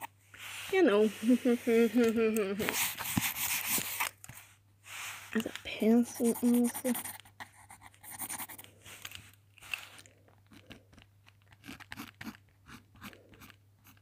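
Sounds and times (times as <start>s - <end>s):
pencil scratching on paper: 2.6s - 4.1s, 5.8s - 8.6s.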